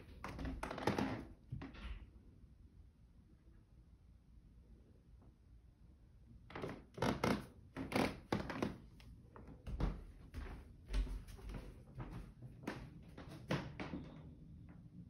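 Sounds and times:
footsteps on hardwood floor: 9.4s - 14.2s.

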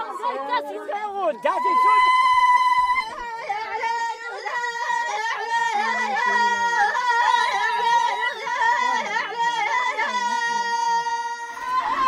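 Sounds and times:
women singing ornamented melody: 2.8s - 12.0s.

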